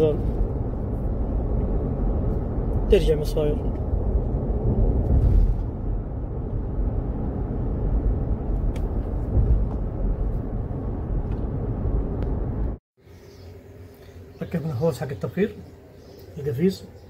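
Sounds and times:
car engine rumble: 0.0 - 12.8
road noise inside cabin: 0.0 - 12.8.

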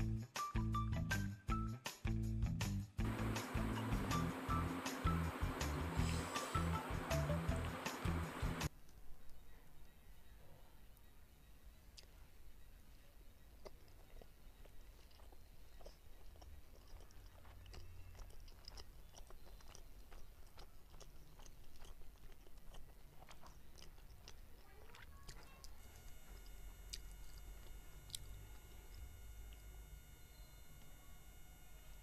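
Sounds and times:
high-pitched whine: 3.0 - 8.7, 25.8 - 32.0
chewing and wet mouth clicks: 12.0 - 12.2, 13.5 - 29.6.

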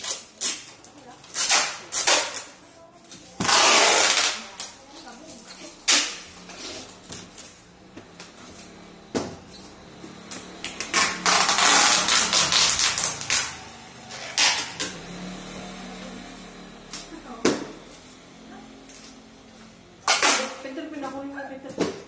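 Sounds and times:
packing tape pulled off roll: 0.0 - 2.6, 3.2 - 4.8, 10.4 - 15.0.

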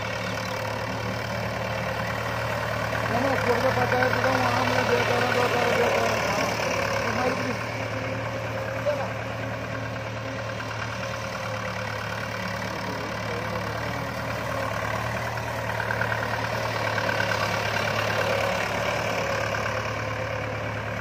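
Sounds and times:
diesel tractor engine running: 0.0 - 21.0.

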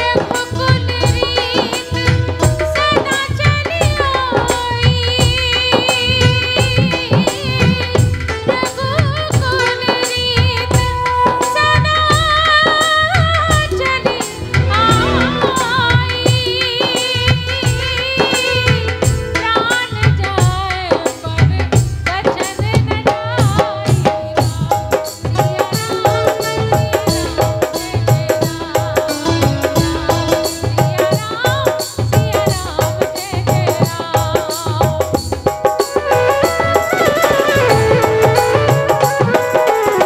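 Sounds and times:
woman singing with vibrato: 0.0 - 35.2, 35.8 - 40.0
steady drum beat: 0.0 - 40.0
melodic instrumental accompaniment: 13.7 - 16.8, 35.9 - 40.0.

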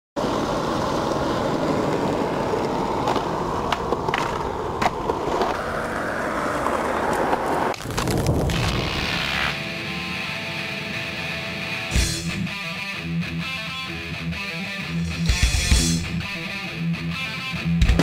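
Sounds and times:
skateboard clacks: 0.2 - 7.8
skateboard wheels rolling on concrete: 0.2 - 12.0.

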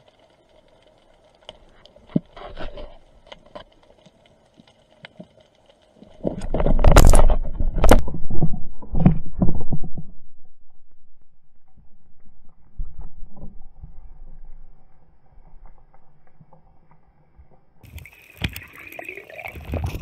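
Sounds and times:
faint underwater clicks: 0.0 - 10.2
fish thrashing against camera housing: 6.2 - 10.1.

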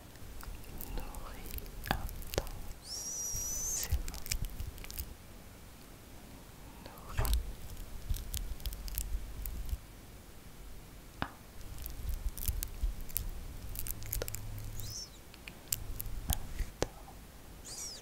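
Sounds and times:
sticky brush clicks: 0.1 - 5.1, 6.9 - 9.8, 11.6 - 17.0.

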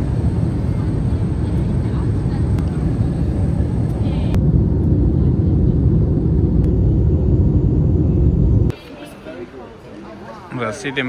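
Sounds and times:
airliner cabin rumble: 0.0 - 8.7.

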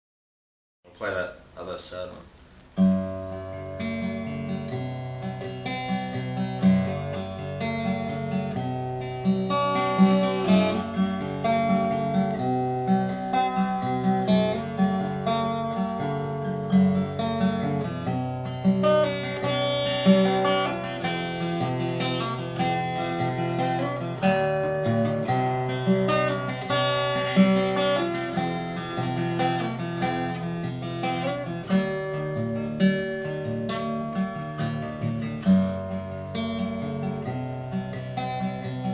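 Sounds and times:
acoustic guitar playing: 2.4 - 38.9.

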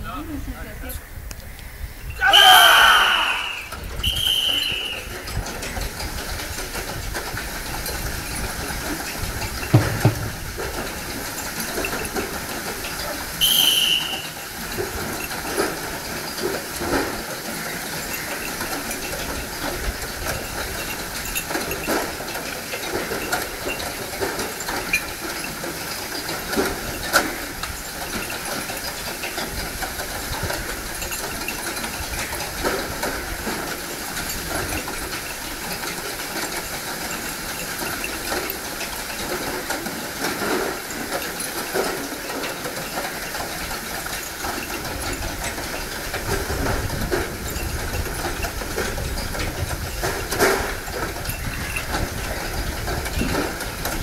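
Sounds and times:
loud high calls: 2.2 - 5.1, 13.4 - 14.4
wooden beam dragging over dirt: 3.4 - 17.4.

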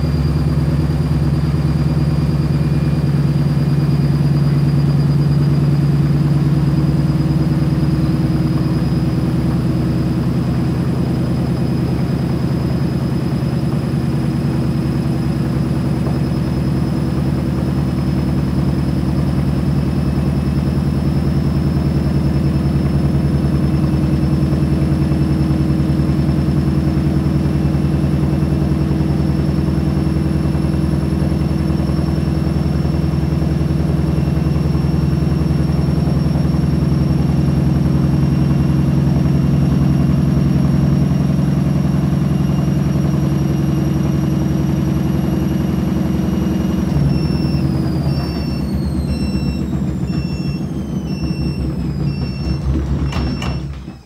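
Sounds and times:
faint high whine: 0.0 - 13.7
washing machine motor hum: 0.0 - 54.0.

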